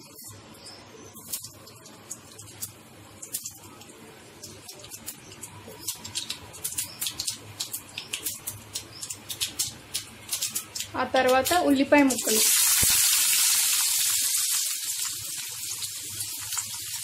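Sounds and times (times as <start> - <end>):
sharp popping seeds: 4.4 - 14.3
seeds sizzling in hot oil: 6.6 - 17.0.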